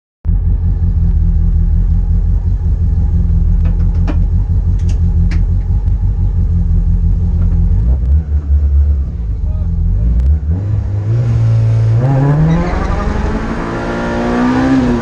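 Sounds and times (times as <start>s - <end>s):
car engine idling: 0.3s - 12.0s.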